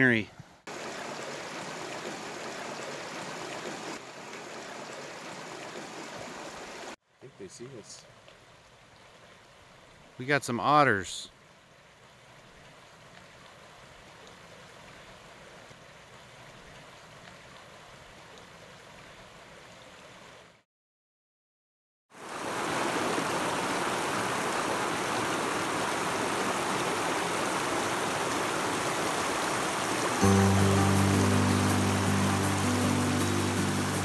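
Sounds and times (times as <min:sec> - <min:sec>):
river rushing over gravel: 0:00.7 - 0:08.1, 0:22.2 - 0:34.0.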